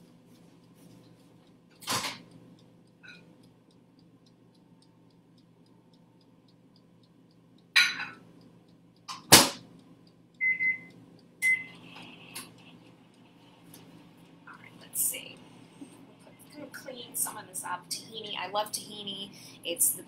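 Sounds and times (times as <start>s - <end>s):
light ticking: 0.0s - 20.0s
toaster oven humming: 0.0s - 20.0s
short beep: 10.4s - 11.8s.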